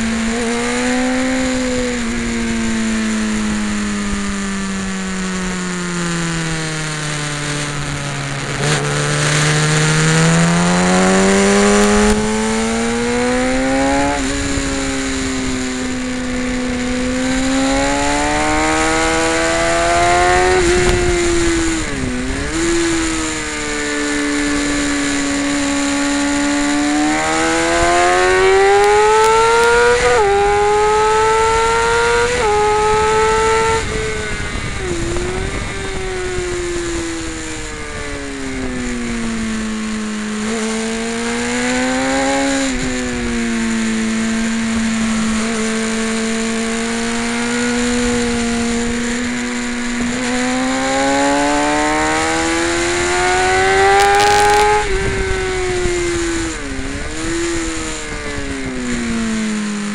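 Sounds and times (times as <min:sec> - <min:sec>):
motorcycle engine revving and shifting: 0:00.0 - 0:59.9.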